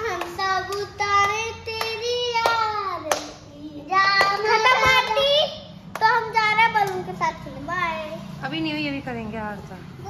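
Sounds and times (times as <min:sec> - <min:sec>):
hands clapping: 0:00.0 - 0:05.2, 0:05.9 - 0:06.2, 0:06.8 - 0:07.1
girl singing: 0:00.0 - 0:08.2.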